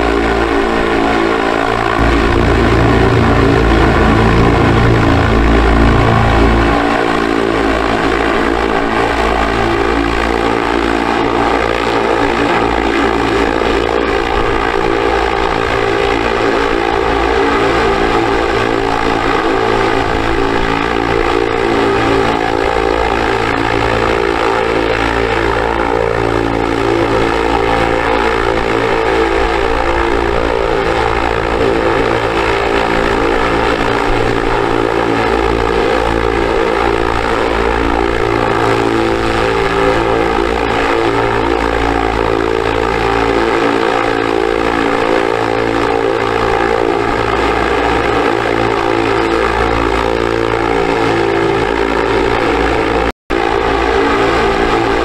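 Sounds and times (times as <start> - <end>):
propellers whirring: 0.0 - 55.0.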